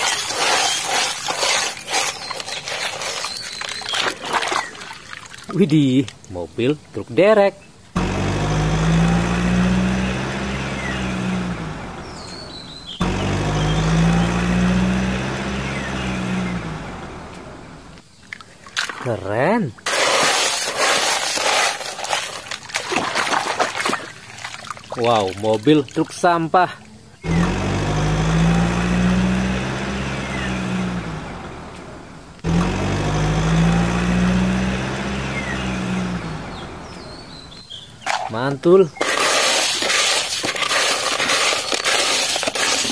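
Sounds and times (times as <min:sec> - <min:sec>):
heavy truck engine drone: 0:08.0 - 0:18.0, 0:27.2 - 0:37.5.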